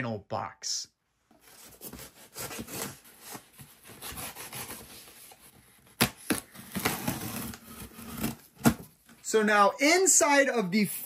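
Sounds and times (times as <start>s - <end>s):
cardboard box tearing: 1.6s - 8.9s
cardboard snapping: 5.9s - 8.9s.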